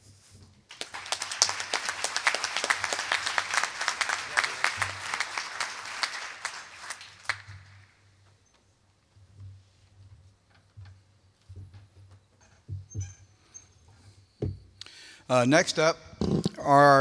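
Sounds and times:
audience applauding: 0.7 - 8.0.

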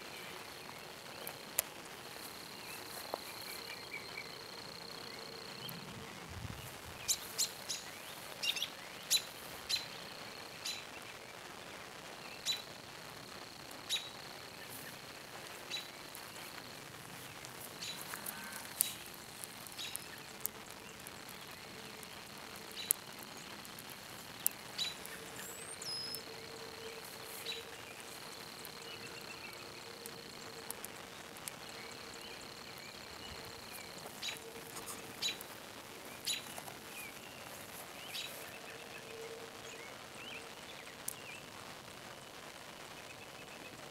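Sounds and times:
wood fire crackling: 0.0 - 43.9
sharp pops of fire: 11.6 - 29.3, 29.9 - 38.6
insect trilling: 12.4 - 38.9.

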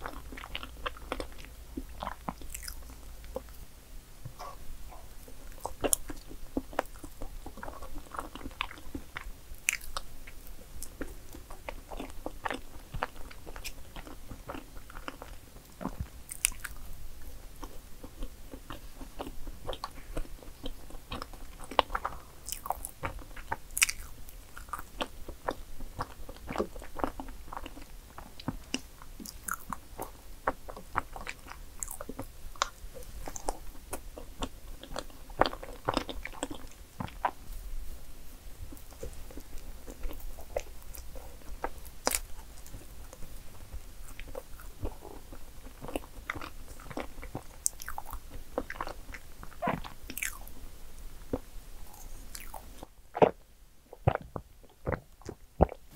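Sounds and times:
person chewing cake: 0.0 - 3.7, 4.3 - 37.9, 38.6 - 50.6, 51.2 - 55.9
mouth clicks: 4.3 - 6.0.

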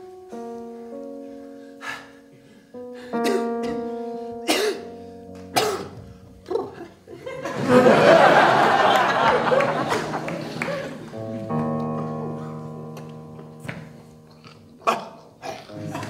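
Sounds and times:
keyboard sustained chords: 0.0 - 16.0
audience laughter: 7.1 - 11.6.

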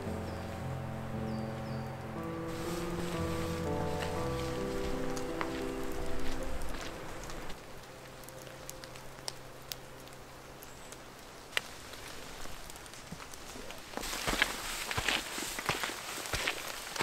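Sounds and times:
low steady hiss: 0.0 - 17.0.

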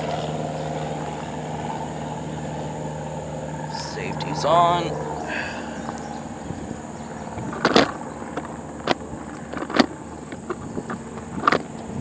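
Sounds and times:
footsteps on gravel: 7.4 - 11.8.

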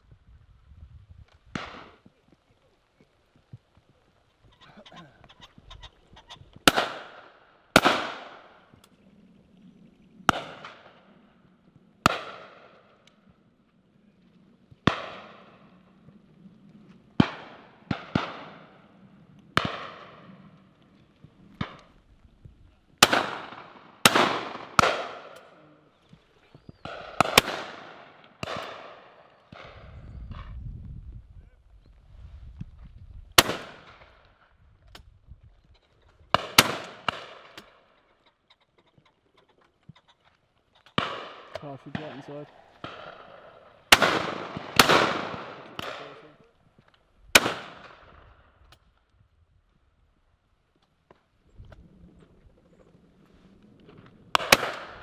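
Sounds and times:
shotguns firing: 1.5 - 2.0, 6.6 - 8.7, 10.3 - 11.1, 12.0 - 12.9, 14.8 - 15.7, 17.2 - 19.0, 19.6 - 20.4, 23.0 - 25.5, 26.8 - 29.8, 33.4 - 34.2, 36.3 - 37.9, 41.0 - 46.4, 47.3 - 48.3, 54.3 - 55.0.

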